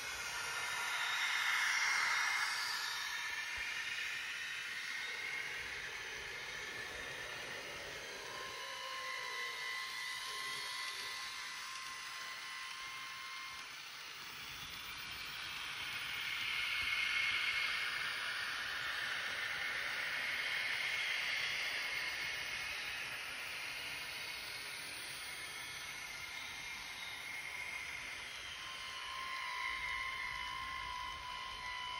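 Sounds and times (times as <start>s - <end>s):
faint high-pitched whine: 0.0s - 31.9s
hiss: 0.0s - 31.9s
model trains running: 0.0s - 31.9s.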